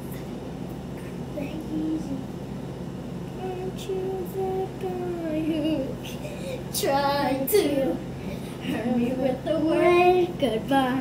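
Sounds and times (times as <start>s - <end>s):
girl singing: 1.3s - 2.4s, 3.3s - 11.0s.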